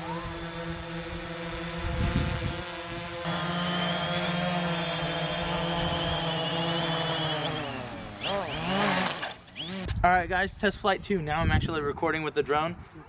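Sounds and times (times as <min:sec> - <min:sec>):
drone propellers buzzing: 0:00.0 - 0:09.9.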